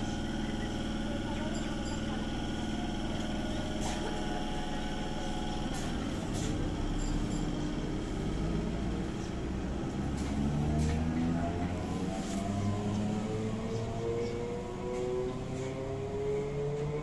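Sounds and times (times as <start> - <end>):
train electric hum: 0.0 - 17.0
train whine rising in pitch: 11.0 - 17.0.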